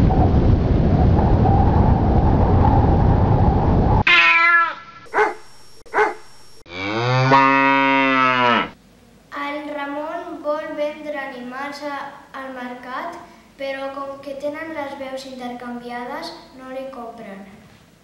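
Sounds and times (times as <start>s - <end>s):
strong wind gusting: 0.0s - 4.1s
cat meows: 4.0s - 5.0s
short animal call: 4.0s - 6.2s
cow mooing: 6.7s - 8.8s.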